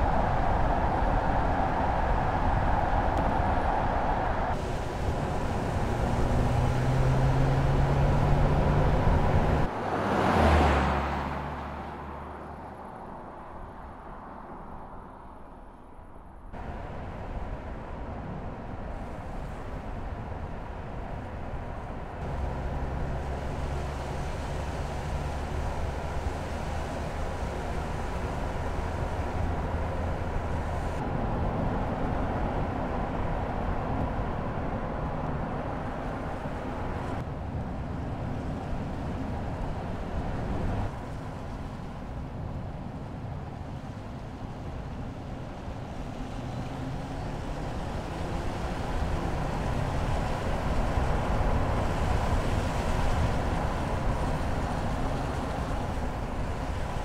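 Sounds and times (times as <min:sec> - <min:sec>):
car engine: 0:00.0 - 0:57.0
tyre road noise: 0:00.0 - 0:57.0.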